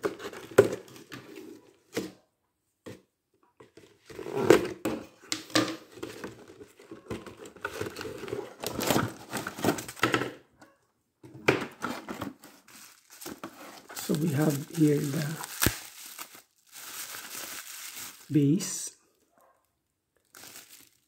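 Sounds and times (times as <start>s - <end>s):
cardboard scraping and rustling: 5.9s - 10.1s, 11.6s - 18.2s
plastic crinkling: 11.8s - 18.9s, 20.2s - 21.0s.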